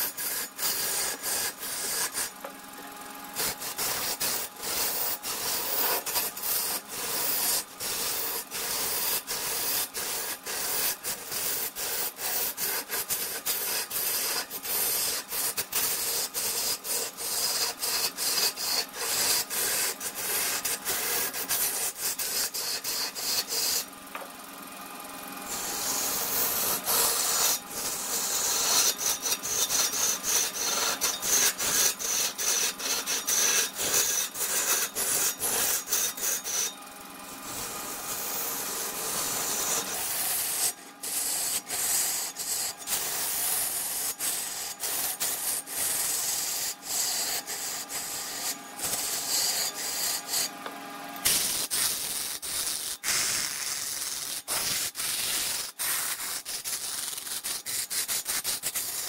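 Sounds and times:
tool scraping wood on a lathe: 0.0 - 24.3, 25.4 - 59.0.

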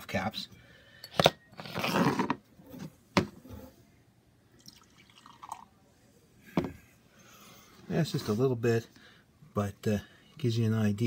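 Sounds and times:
beer pouring into glass: 4.6 - 5.8.

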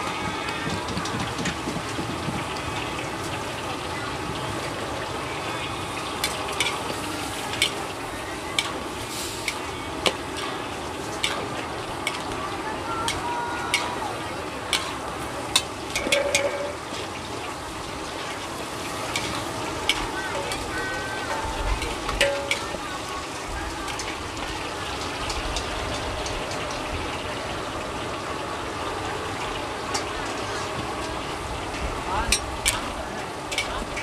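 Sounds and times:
stir-fry sizzling in a wok: 0.0 - 34.0
metal spatulas clanking on a pan: 6.2 - 17.6, 18.8 - 23.1, 32.2 - 34.0.

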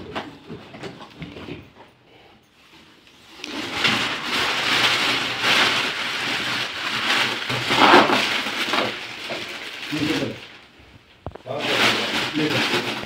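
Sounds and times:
plastic bag crinkling and rustling: 2.7 - 13.0.

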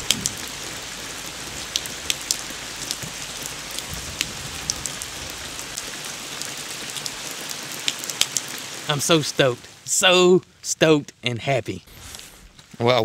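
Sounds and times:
rain falling: 0.0 - 13.0.

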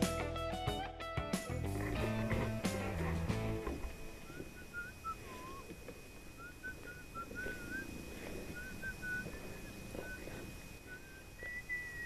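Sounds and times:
thin steady high tone: 1.8 - 12.0
faint whistled notes: 3.9 - 5.7, 6.3 - 12.0.

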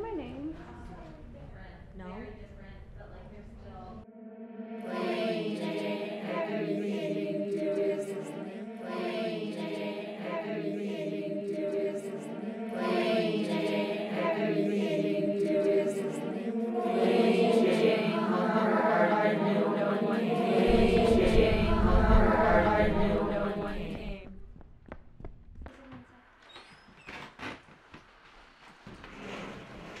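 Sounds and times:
choral chanting: 4.0 - 24.4
low drone: 4.0 - 24.4.

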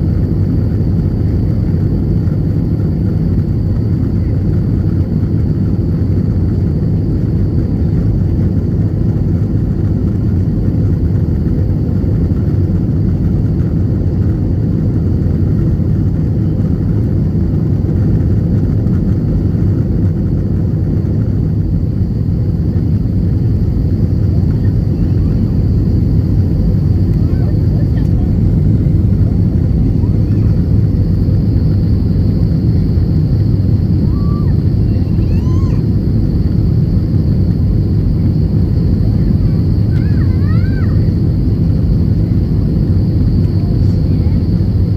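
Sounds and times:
jet engines rumbling: 0.0 - 44.9
faint high whine: 14.4 - 44.9.

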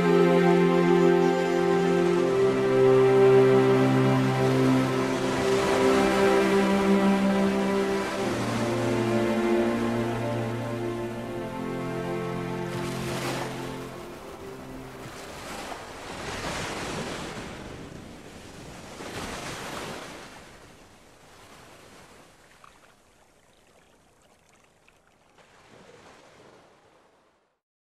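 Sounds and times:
music chord: 0.0 - 15.5
sea waves washing onto shore: 1.6 - 22.6.

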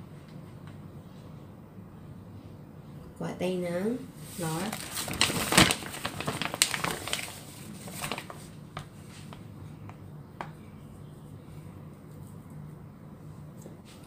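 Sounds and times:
flour container rustling: 4.2 - 9.4.

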